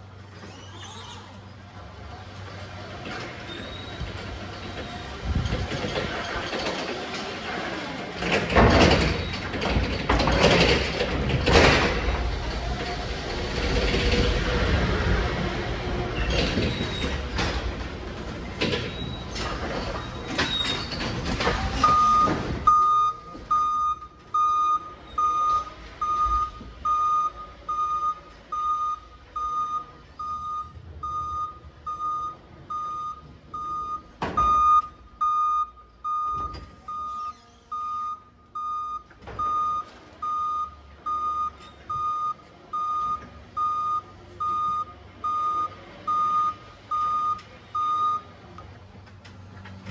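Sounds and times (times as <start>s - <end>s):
rattling and clunking: 3.0s - 23.6s
forklift reversing alarm beeping: 21.6s - 48.4s.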